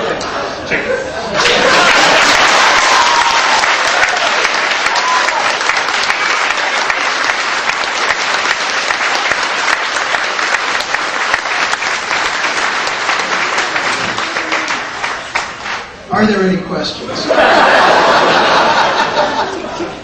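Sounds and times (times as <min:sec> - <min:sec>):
audience applauding: 0:01.4 - 0:16.0.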